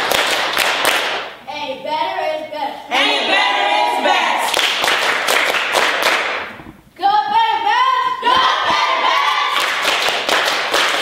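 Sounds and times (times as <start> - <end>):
rhythmic clapping: 0.0 - 1.4, 4.4 - 6.6, 8.2 - 11.0.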